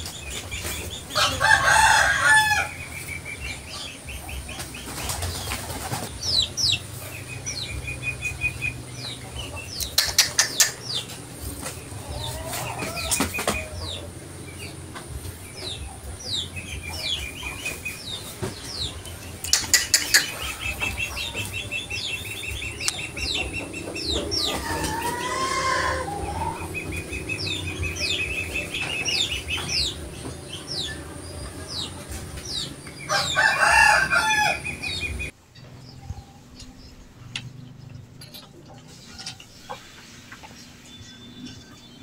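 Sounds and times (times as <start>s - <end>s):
birds chirping and trilling: 0.0s - 42.0s.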